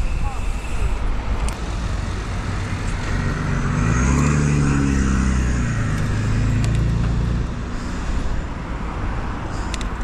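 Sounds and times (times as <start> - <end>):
car driving past: 2.0 - 7.9.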